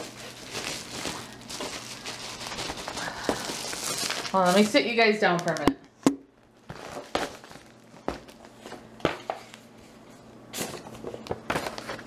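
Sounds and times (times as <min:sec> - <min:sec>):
paper-like rustling: 0:00.0 - 0:04.8.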